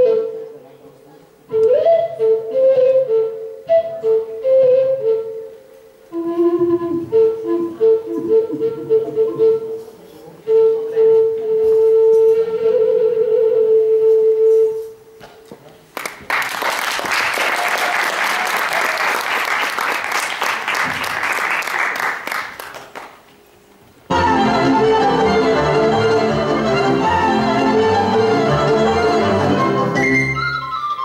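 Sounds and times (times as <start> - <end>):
flute long note: 0.0 - 0.7, 1.5 - 15.0, 24.1 - 31.0
music: 0.0 - 0.8, 1.5 - 15.2, 24.1 - 31.0
audience applauding: 15.9 - 23.2.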